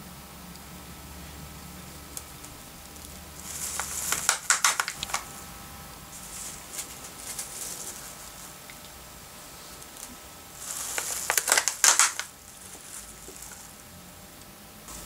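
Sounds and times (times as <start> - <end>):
plastic film crinkling: 2.2 - 5.4, 6.1 - 13.8.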